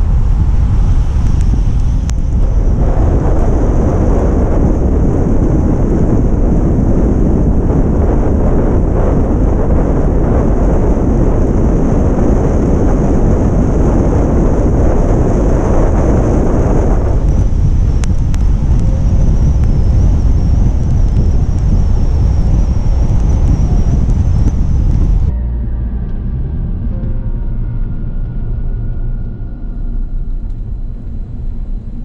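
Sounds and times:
wind buffeting microphone: 0.0 - 25.4
road noise: 0.0 - 32.0.

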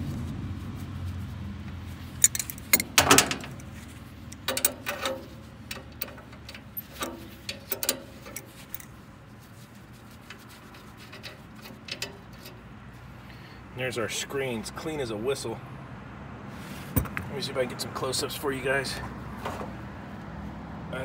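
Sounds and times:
wrench clicking on metal fitting: 2.2 - 3.6, 4.3 - 8.9.

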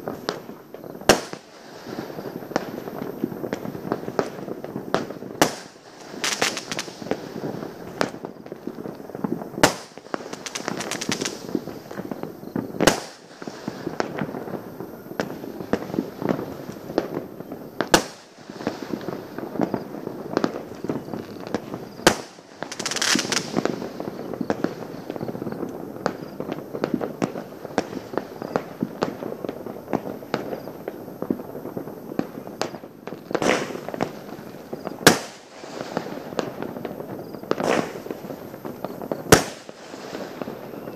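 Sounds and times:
fireworks and firecrackers banging: 0.0 - 40.9
hissing crackle: 0.0 - 40.9.

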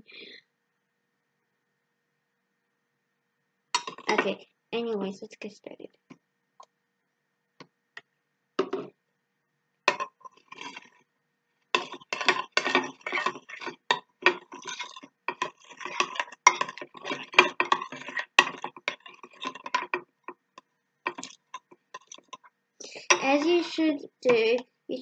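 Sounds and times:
spoon scraping glass bowl: 9.9 - 11.0, 11.8 - 24.6.

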